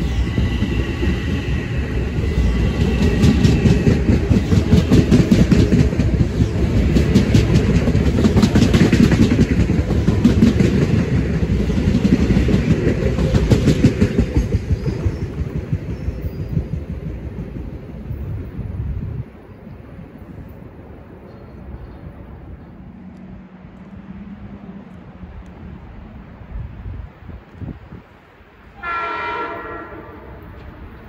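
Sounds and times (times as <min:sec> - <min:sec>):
train rumbling past: 0:00.0 - 0:31.0.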